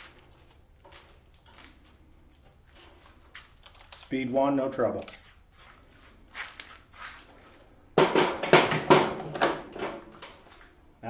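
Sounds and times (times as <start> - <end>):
plastic clacks and rattles: 8.0 - 10.6.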